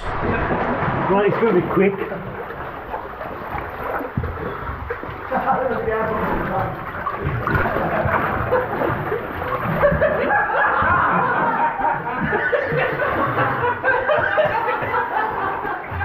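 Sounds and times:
men laughing: 5.0s - 6.4s, 7.7s - 16.0s.

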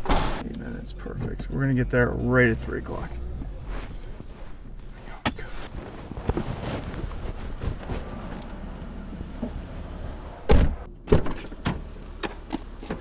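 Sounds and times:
car door shutting: 7.7s - 13.0s.

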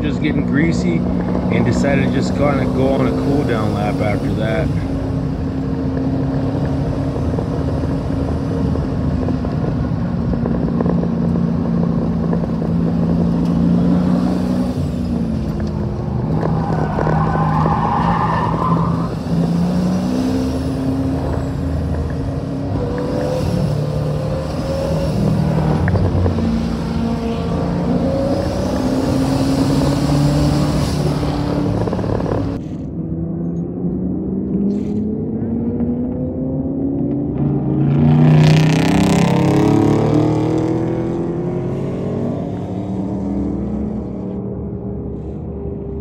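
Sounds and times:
car engine revving: 0.0s - 46.0s
tire squeal: 16.0s - 21.8s.

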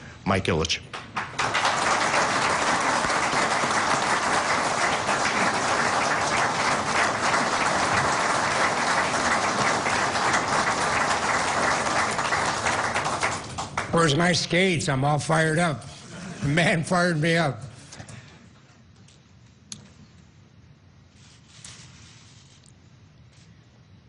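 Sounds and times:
audience applauding: 0.9s - 14.4s.

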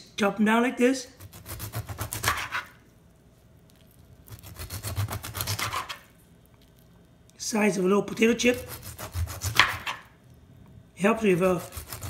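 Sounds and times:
knife sawing through fish: 1.2s - 2.7s, 4.3s - 6.0s, 8.6s - 10.0s, 11.3s - 12.0s.

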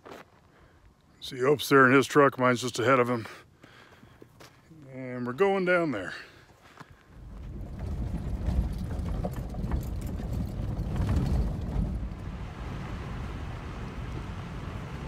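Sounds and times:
vehicle rumble on dirt road: 3.6s - 15.0s
rattles and knocks: 7.2s - 12.4s.

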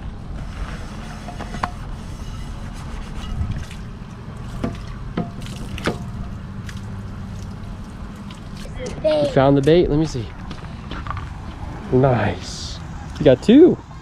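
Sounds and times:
low steady hum: 0.0s - 13.2s
water trickling and dripping: 3.2s - 8.8s.

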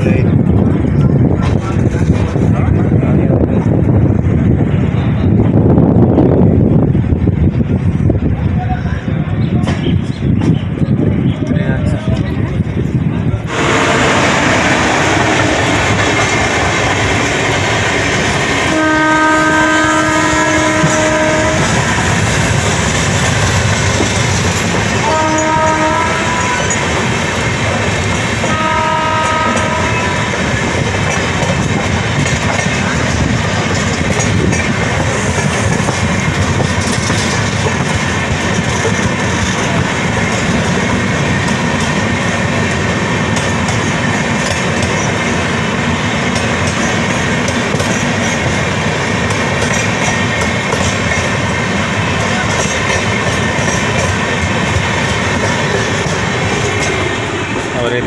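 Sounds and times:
train rumbling on rails: 0.0s - 58.0s
train horn blasts: 18.6s - 21.9s, 25.0s - 27.0s, 28.4s - 30.4s.

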